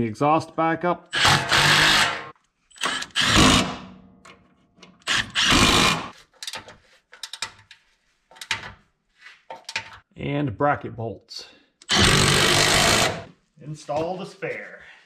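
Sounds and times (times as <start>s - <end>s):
impact wrench hammering: 1.2s - 4.0s, 5.1s - 6.1s, 11.8s - 13.3s.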